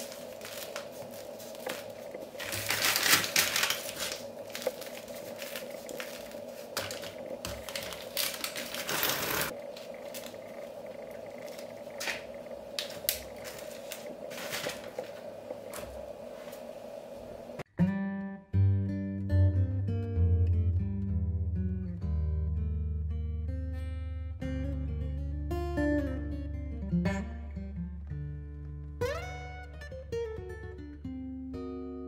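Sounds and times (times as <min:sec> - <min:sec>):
bread crust crackling: 0:00.0 - 0:17.6
faint steady hum: 0:00.0 - 0:17.6.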